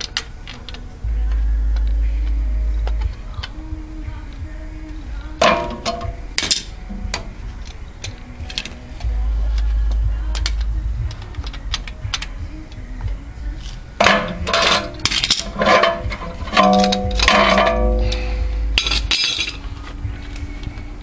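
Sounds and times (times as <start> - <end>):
low rumble: 0.9 - 21.0
metal tools clinking: 13.6 - 20.0.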